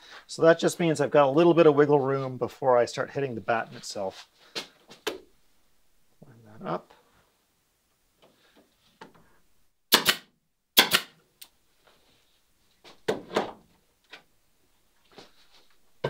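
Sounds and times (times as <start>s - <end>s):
nail gun shots: 9.9s - 11.2s.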